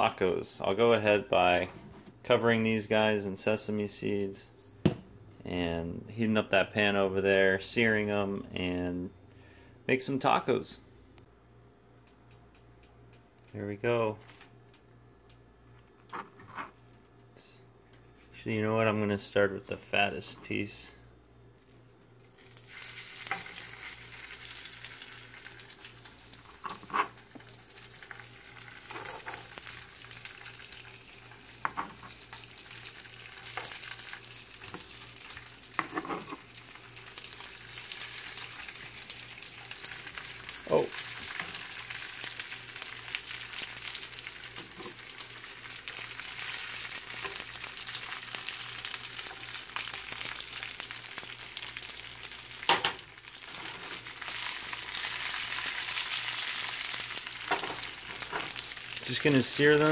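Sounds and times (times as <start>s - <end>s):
fish sizzling in oil: 22.2s - 59.9s.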